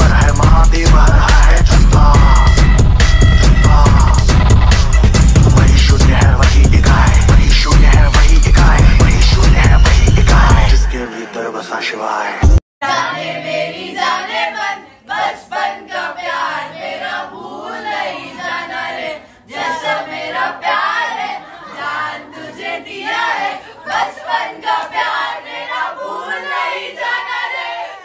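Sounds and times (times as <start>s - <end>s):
group singing and cheering: 0.0s - 28.0s.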